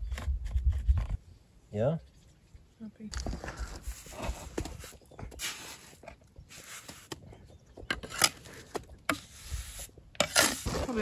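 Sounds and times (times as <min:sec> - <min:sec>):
trowel scraping wet mortar: 0:03.6 - 0:07.2, 0:07.9 - 0:11.0.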